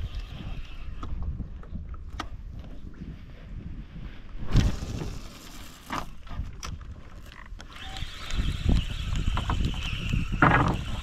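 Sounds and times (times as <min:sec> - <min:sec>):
wind on microphone: 0:00.0 - 0:11.0
spinning reel whirring: 0:07.7 - 0:11.0.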